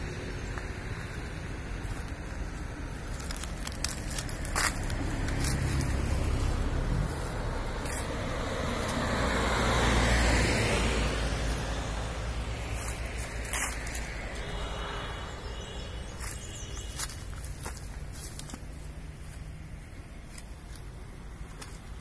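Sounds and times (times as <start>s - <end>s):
vehicle passing: 0.0s - 22.0s
low rumble: 10.9s - 18.4s.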